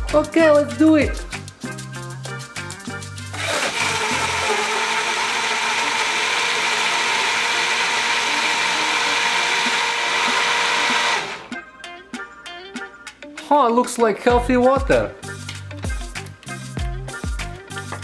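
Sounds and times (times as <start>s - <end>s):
blender running: 3.3s - 11.5s.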